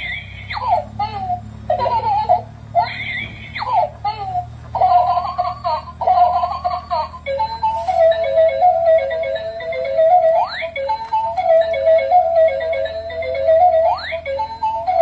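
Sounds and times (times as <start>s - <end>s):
tinny electronic tune: 7.3s - 15.0s.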